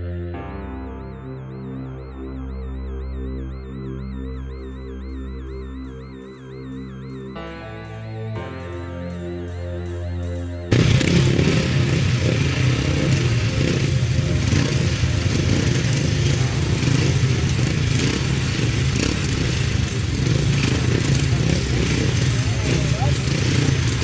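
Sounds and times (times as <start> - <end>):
motorcycle engines running: 10.7 - 24.0.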